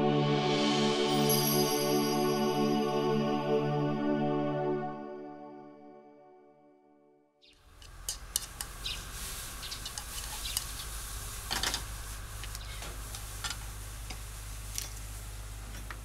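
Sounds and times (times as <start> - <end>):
steady hiss: 7.7 - 16.0.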